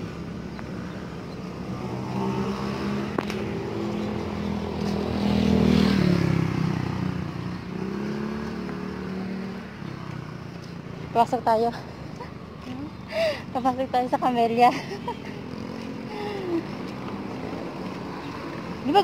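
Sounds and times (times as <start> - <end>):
vehicle engine passing by: 1.6 - 12.1, 15.2 - 19.0.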